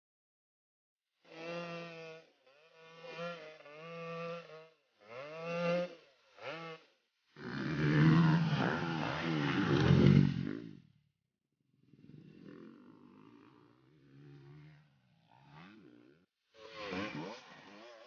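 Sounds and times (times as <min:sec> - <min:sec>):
race engines revving: 0:07.5 - 0:10.7.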